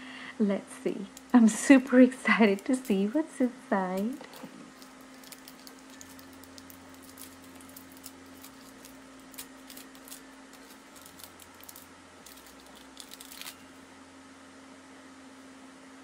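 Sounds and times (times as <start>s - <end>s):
faint steady hum: 0.0s - 16.0s
packaging crinkling: 2.4s - 3.2s, 3.9s - 13.7s.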